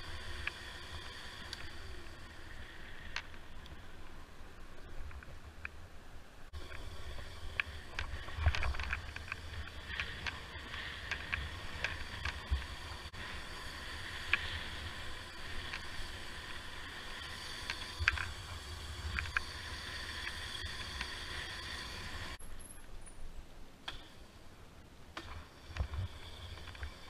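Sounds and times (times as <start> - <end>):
faint high whine: 0.0 - 27.0
sharp clicks and rattles: 6.6 - 22.4.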